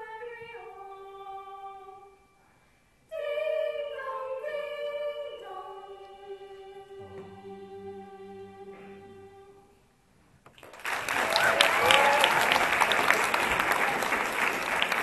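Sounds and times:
choir singing held notes: 3.1s - 9.8s.

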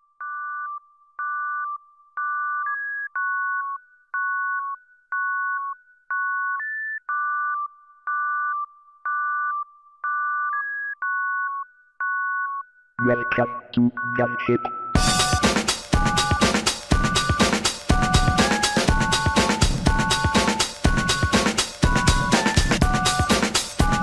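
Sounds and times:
electronic two-tone beeps: 10.1s - 15.5s.

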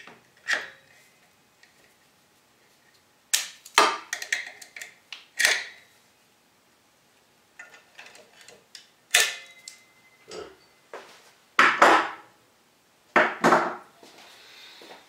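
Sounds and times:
short metallic ring: 9.2s - 10.8s.

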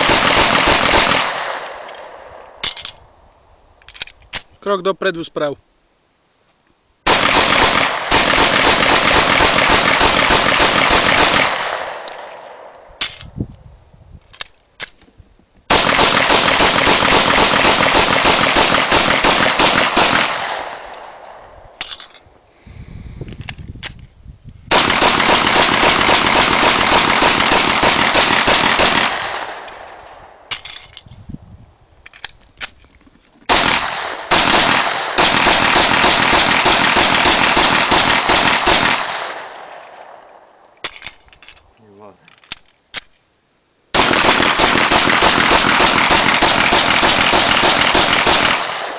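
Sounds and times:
pistol firing rapid shots: 0.0s - 1.8s, 7.1s - 12.3s, 15.7s - 21.1s, 24.7s - 29.7s, 33.5s - 39.5s, 43.9s - 48.9s.

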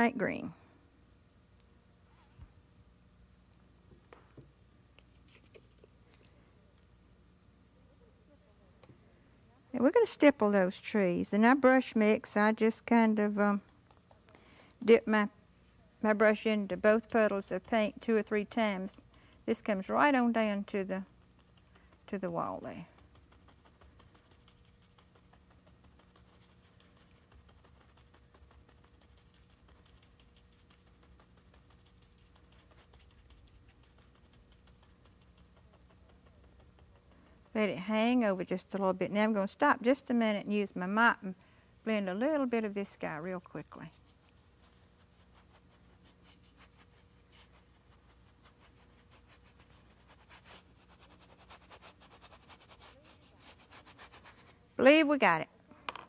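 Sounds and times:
low steady hum: 0.0s - 56.0s
brush swishing on canvas: 20.4s - 38.5s, 43.0s - 54.6s.

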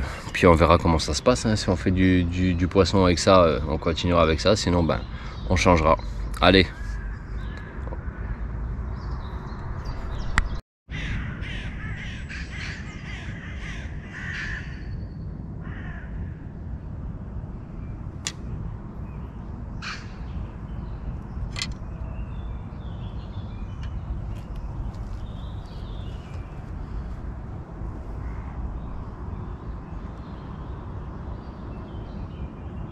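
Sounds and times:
crows cawing: 6.7s - 8.6s, 10.9s - 14.9s, 15.6s - 16.4s, 19.8s - 20.3s, 28.2s - 28.6s.

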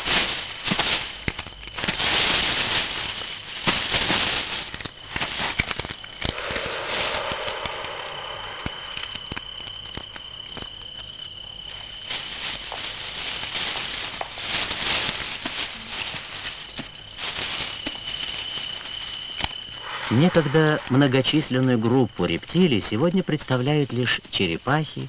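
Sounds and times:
lizards scrabbling in twigs and sand: 0.0s - 21.8s
thin high tone: 6.3s - 10.7s, 19.8s - 22.1s.

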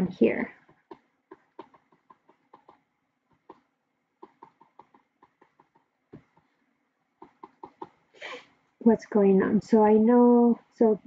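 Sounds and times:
stylus tapping tablet screen: 0.0s - 8.1s.

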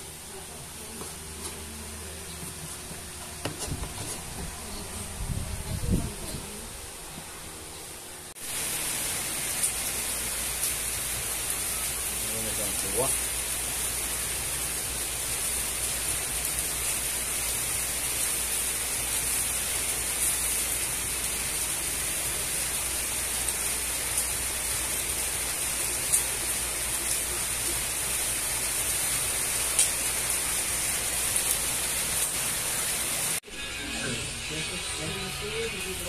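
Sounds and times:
meat sizzling on a grill: 8.4s - 36.0s.

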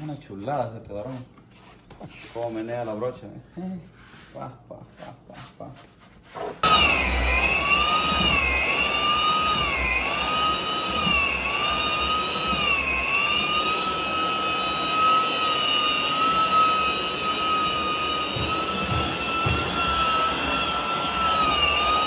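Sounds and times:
electric floor sander whining: 6.6s - 22.0s.

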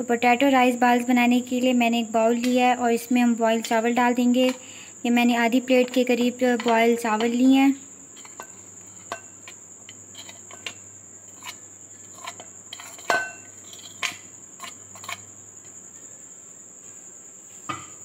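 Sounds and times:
light clinks against dishes: 8.2s - 10.8s, 12.2s - 14.2s
spoon scraping rice off plate: 8.2s - 15.3s.

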